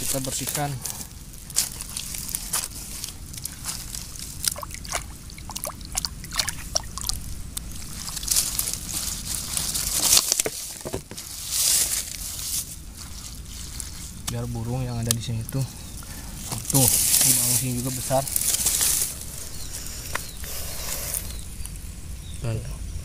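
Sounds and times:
wet mud squelching: 0.9 - 10.8
hand sloshing water: 4.4 - 7.2
loud splash and rush of water: 4.4 - 7.2
small splashes and clicks: 4.4 - 8.7.

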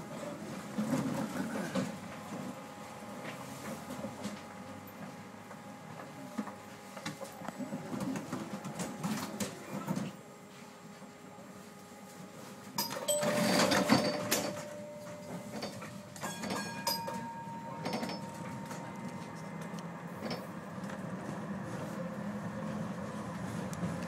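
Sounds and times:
tram running hum: 0.0 - 24.0
short ringing tones: 12.8 - 19.2
clicks and clunks: 12.8 - 20.4.

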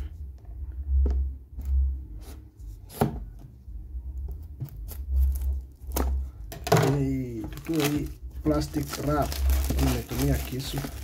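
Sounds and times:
knife cutting plastic wrap: 7.6 - 11.0.

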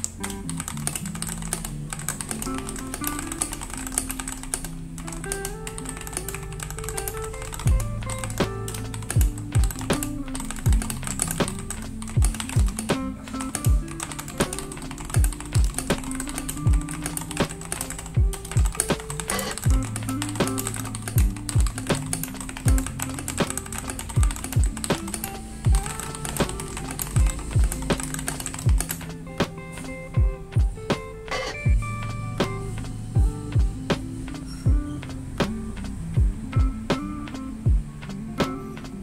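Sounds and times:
mechanical keyboard typing: 0.0 - 29.1
lofi music with deep beat: 0.0 - 39.0.

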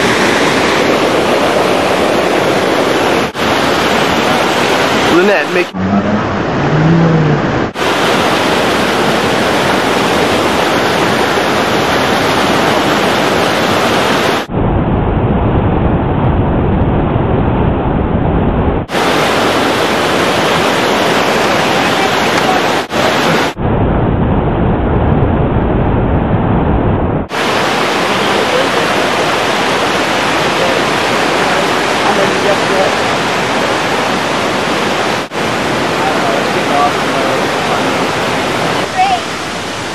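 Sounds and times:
river water rushing over boulders: 0.0 - 14.5, 18.9 - 23.6, 27.3 - 39.9.

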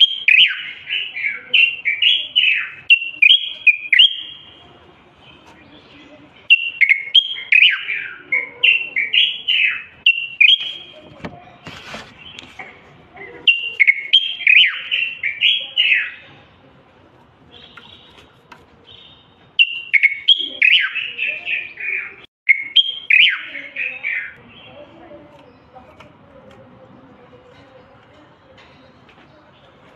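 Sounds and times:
bird singing whistled notes: 0.0 - 4.6, 6.5 - 11.0, 13.5 - 16.2, 18.9 - 24.8.

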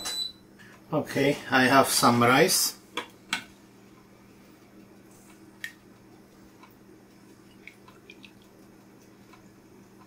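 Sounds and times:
faint steady low hum: 0.1 - 10.0.

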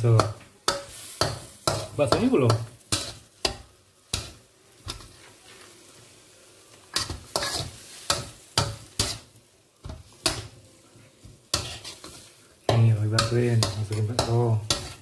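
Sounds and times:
faint frying sizzle: 0.0 - 15.0
metal ladle scraping a wok: 6.9 - 9.3, 11.5 - 12.4.

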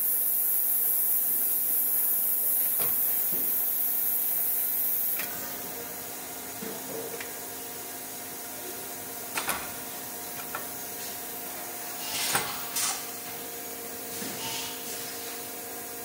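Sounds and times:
industrial machinery hum: 0.0 - 16.0
short hissing bursts: 10.8 - 13.2, 14.1 - 15.5.

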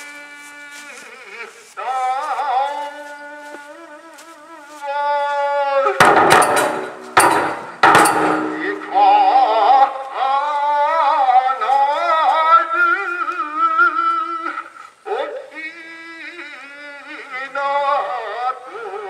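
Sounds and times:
taiko drum strikes: 6.0 - 9.1.

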